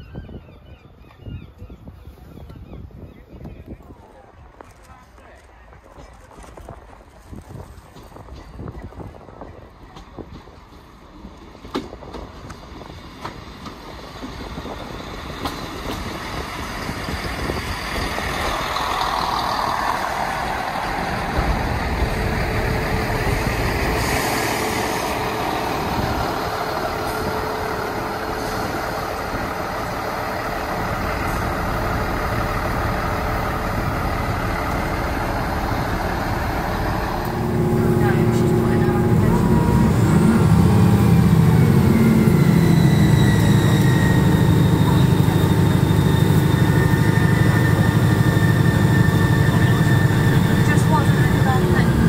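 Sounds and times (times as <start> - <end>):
vehicle running: 17.5 - 52.0.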